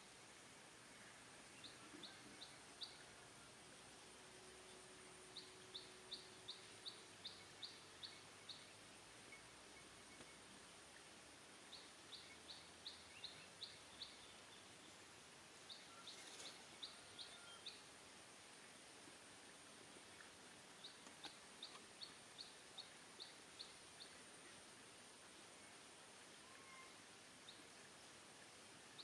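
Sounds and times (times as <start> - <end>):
bird calling short high notes: 26.4 - 27.0.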